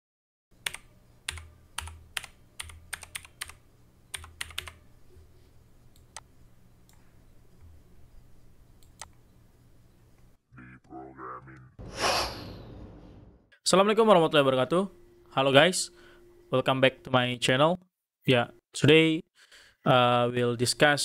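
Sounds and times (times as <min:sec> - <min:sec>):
keyboard typing: 0:00.6 - 0:04.8.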